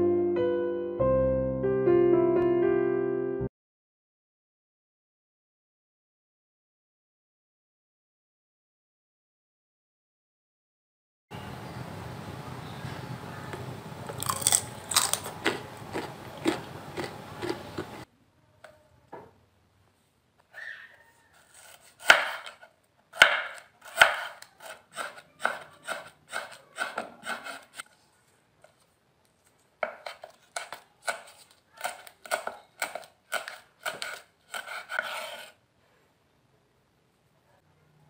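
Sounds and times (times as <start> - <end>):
knife chopping on cutting board: 21.5 - 27.8, 29.8 - 35.5.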